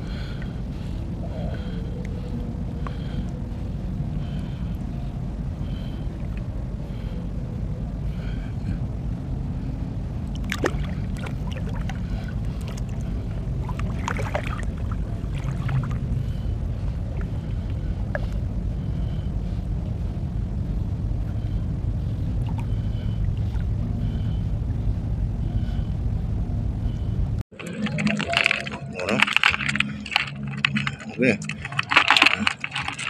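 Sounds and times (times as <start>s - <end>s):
steady low rumble: 0.0s - 33.0s
seawater sloshing and splashing: 10.3s - 16.5s, 27.5s - 33.0s.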